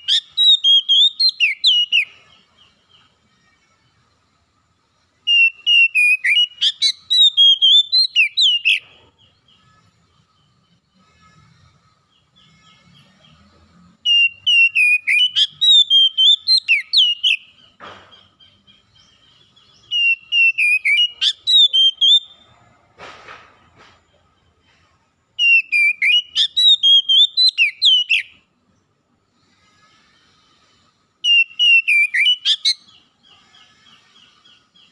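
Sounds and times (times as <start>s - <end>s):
bird whistled song: 0.0s - 3.2s, 5.2s - 9.6s, 11.6s - 22.5s, 25.4s - 28.5s, 30.2s - 34.9s.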